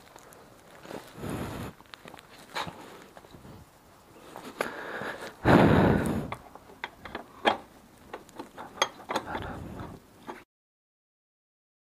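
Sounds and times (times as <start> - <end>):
scraping rustle: 0.0 - 5.4
metallic clicks and knocks: 6.3 - 10.4.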